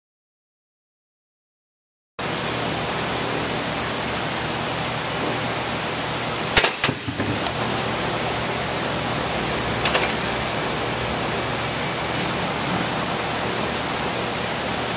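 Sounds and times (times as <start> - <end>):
steady hiss with high whine: 2.2 - 14.9.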